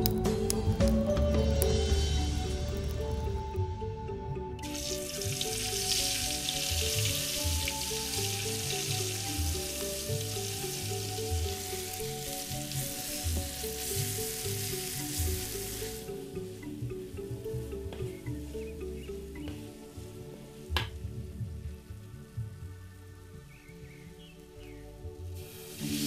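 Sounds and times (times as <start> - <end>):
spice paste sizzling in oil: 4.6 - 19.3, 24.4 - 26.0.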